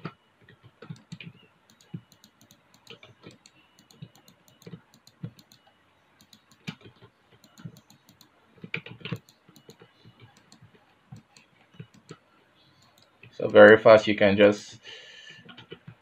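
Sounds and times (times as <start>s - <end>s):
computer keyboard clicking: 0.0s - 5.6s, 6.2s - 12.2s, 15.4s - 16.0s
computer mouse clicking: 0.0s - 13.6s, 15.3s - 16.0s.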